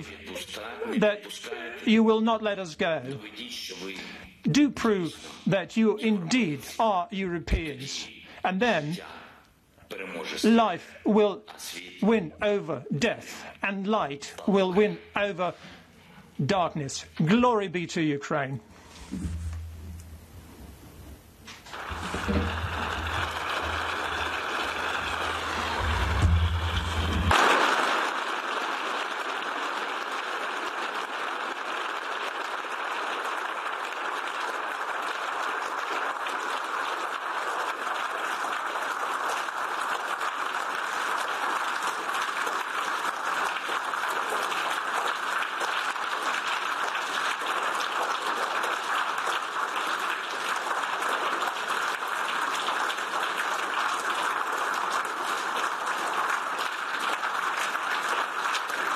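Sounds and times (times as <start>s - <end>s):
crowd applauding: 0.0s - 1.4s, 21.5s - 58.9s.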